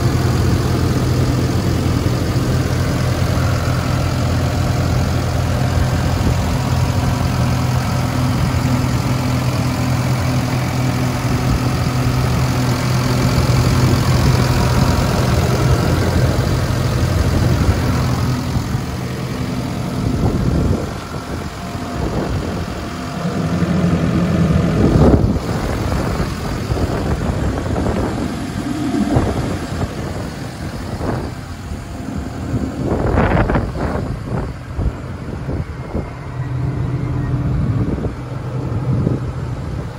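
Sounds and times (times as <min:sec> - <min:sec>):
street sweeper engine idling: 0:00.0 - 0:39.9.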